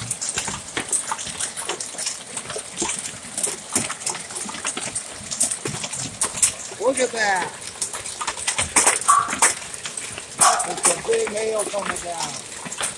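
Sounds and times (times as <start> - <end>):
hailstones cracking on hard surfaces: 0.0 - 12.9
hiss of falling hail: 0.0 - 12.9.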